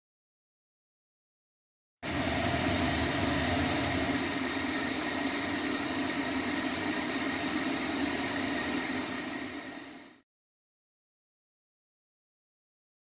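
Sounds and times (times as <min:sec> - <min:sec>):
pot boiling: 0:02.0 - 0:10.2
whirring hum: 0:02.0 - 0:10.2.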